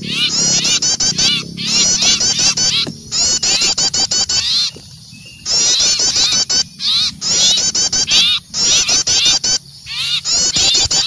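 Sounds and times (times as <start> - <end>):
songbird alarm chirps: 0.0 - 11.0.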